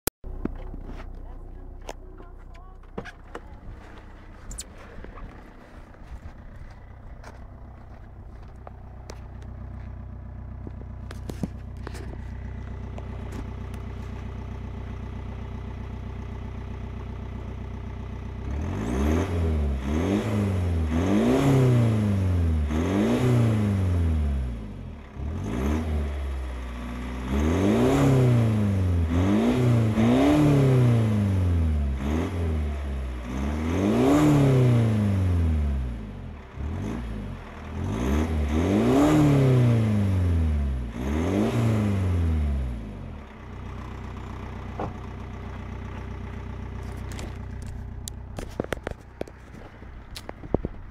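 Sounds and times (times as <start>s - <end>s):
diesel engine idling and revving: 0.2s - 50.9s.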